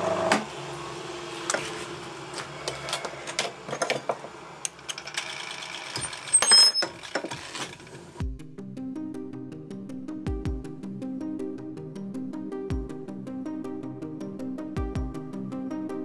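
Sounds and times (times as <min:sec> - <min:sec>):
background music: 0:08.2 - 0:16.0.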